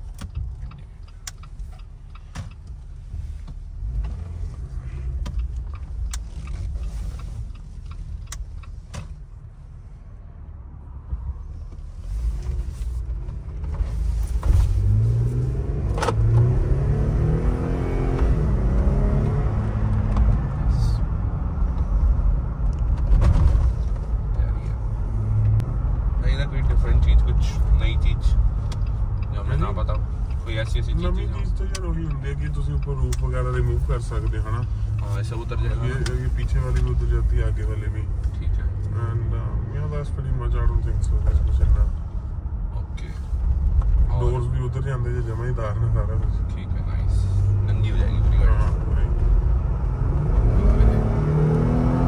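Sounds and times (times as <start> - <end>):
car engine rumbling: 0.0 - 52.0
road noise: 0.0 - 52.0.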